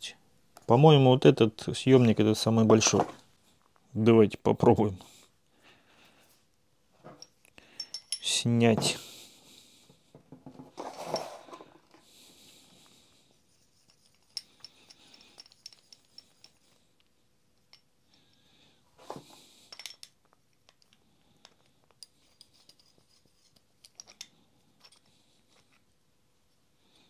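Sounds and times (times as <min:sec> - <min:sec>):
metal tool clicking and clinking: 0:07.2 - 0:08.4, 0:13.9 - 0:16.7, 0:19.7 - 0:20.9, 0:21.9 - 0:25.7.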